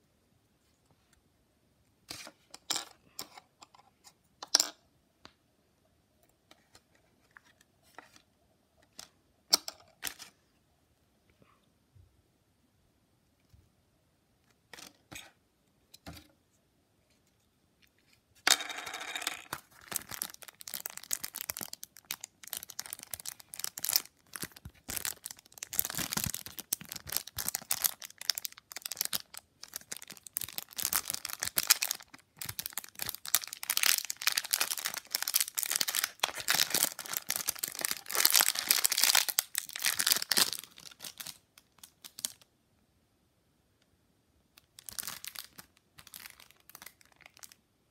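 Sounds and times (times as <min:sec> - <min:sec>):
plastic packaging crinkling: 0:19.4 - 0:42.4, 0:44.6 - 0:47.6.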